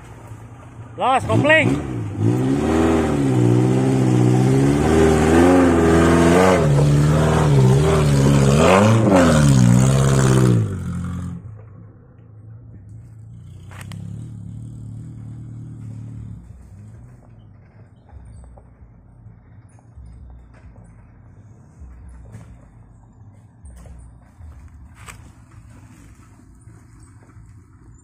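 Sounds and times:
car engine revving under load: 0.0 - 23.0.

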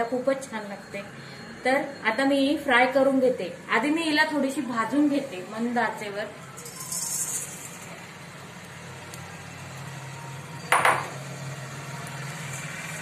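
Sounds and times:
dried flakes pattering into pan: 6.6 - 8.0.

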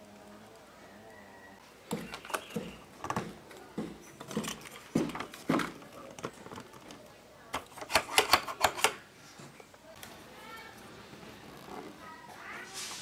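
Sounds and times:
plastic toy parts clicking: 6.0 - 9.0.

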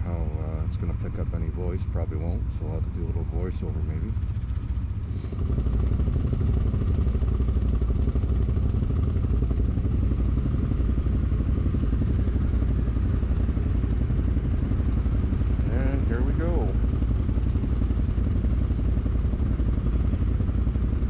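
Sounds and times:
atv engine running steadily: 0.0 - 21.0.

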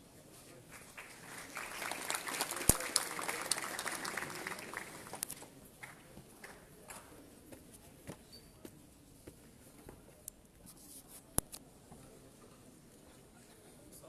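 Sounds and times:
audience applauding: 0.7 - 6.6.

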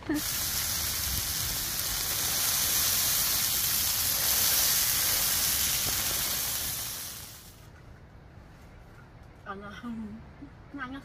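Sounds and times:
bread sizzling in a frying pan: 0.1 - 7.6.

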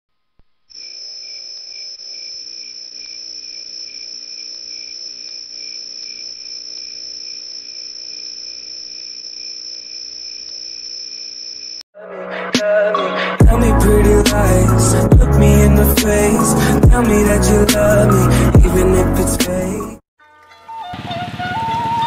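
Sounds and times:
crickets trilling: 0.7 - 11.8.

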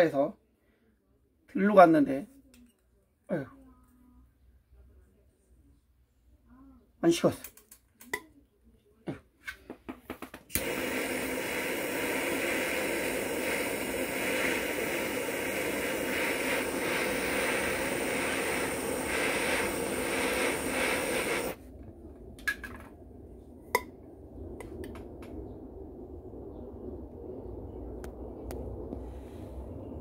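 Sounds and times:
butane torch hissing: 10.5 - 21.6
torch igniter clicks: 10.5 - 21.6.

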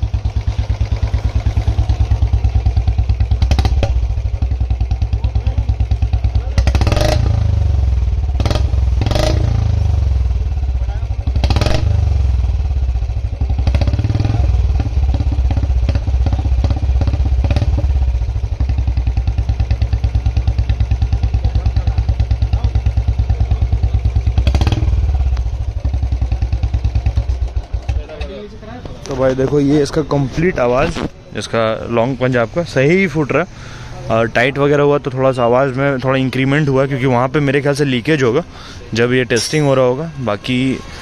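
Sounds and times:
motorcycle engine idling: 0.0 - 30.7.

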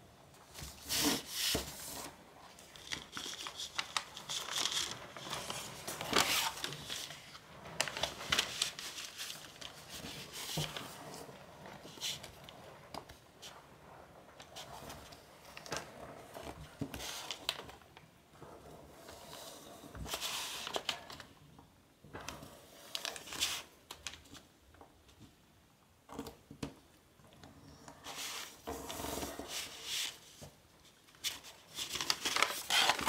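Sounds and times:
paper rustling and crinkling: 0.5 - 18.0, 19.9 - 21.4, 22.2 - 24.5, 28.0 - 33.0.

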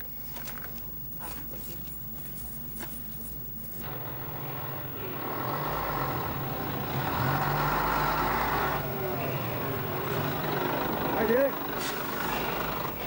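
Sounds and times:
diesel truck engine running: 3.8 - 13.0.

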